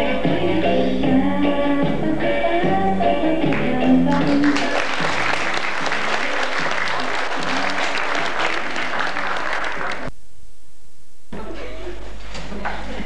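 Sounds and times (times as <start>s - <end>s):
audience applauding: 4.2s - 10.1s
low hum: 10.1s - 11.4s.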